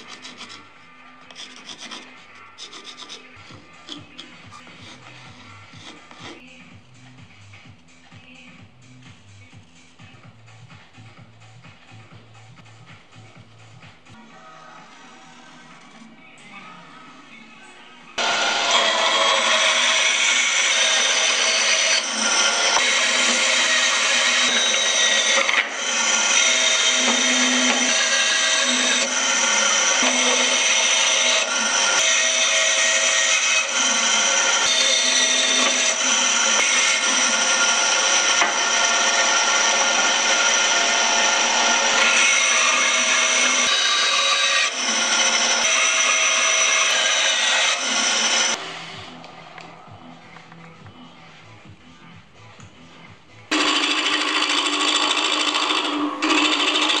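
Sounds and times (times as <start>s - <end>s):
bandsaw cutting wood: 0.0s - 0.7s, 1.4s - 6.4s, 18.2s - 49.0s, 53.5s - 57.0s.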